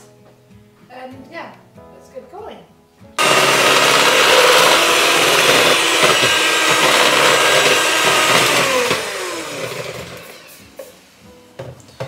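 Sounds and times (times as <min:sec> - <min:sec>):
electric hand mixer whining: 0:03.2 - 0:10.8.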